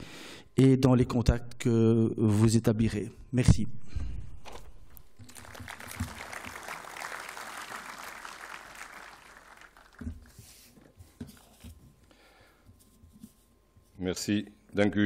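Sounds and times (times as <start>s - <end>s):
audience applauding: 5.2s - 10.4s.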